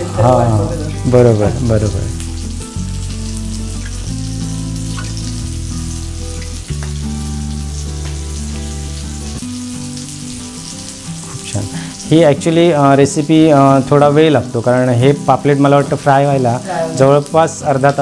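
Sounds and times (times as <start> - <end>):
background music low notes: 0.0 - 18.0
fish sizzling in oil: 0.0 - 18.0.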